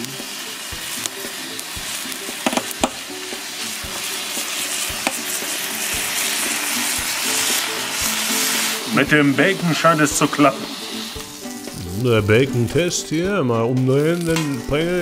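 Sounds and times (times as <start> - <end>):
bacon sizzling on hot plate: 0.0 - 15.0
sharp fat pops: 2.4 - 3.0.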